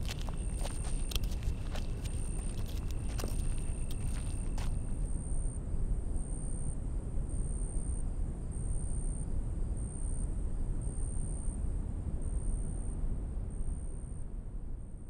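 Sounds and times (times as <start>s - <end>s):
insect trill: 0.0s - 5.1s.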